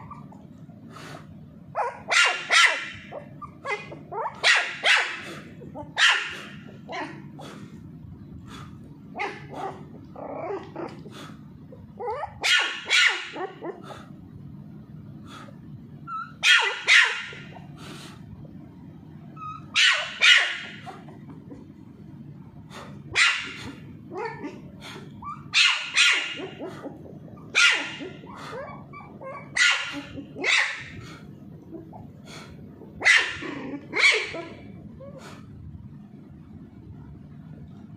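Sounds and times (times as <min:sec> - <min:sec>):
puppy yapping: 0:00.0 - 0:00.4, 0:01.8 - 0:07.5, 0:09.2 - 0:11.1, 0:11.9 - 0:14.0, 0:16.1 - 0:17.7, 0:19.4 - 0:21.6, 0:23.1 - 0:24.6, 0:25.2 - 0:31.1, 0:33.0 - 0:35.4.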